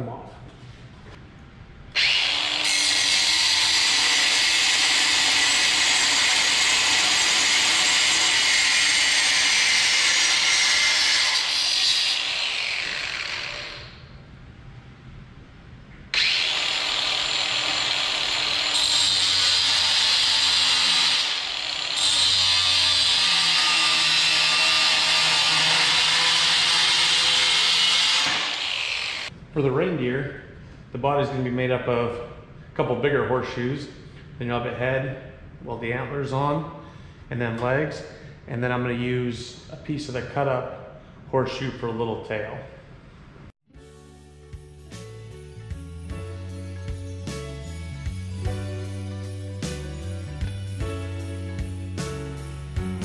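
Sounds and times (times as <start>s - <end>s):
angle grinder cutting steel: 2.0s - 14.0s, 16.2s - 29.3s.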